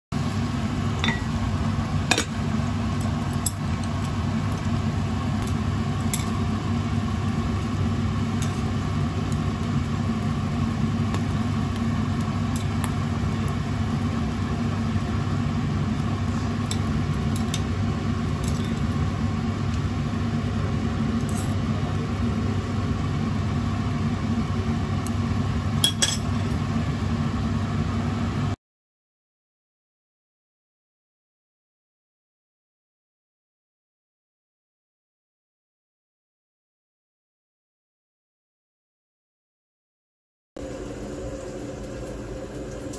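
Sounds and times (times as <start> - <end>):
soup simmering in a pot: 0.2 - 28.5, 40.6 - 42.9.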